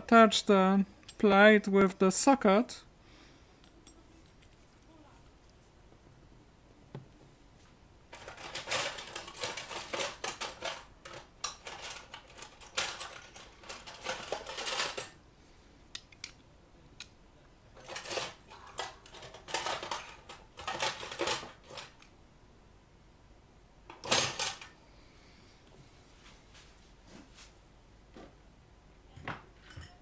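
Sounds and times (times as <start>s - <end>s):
small metal parts clinking: 8.1s - 15.2s, 17.8s - 22.0s.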